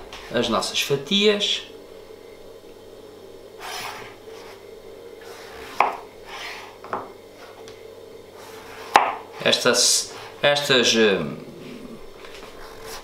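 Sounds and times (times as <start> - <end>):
knife tapping a cutting board: 5.8 - 6.0, 8.9 - 9.2.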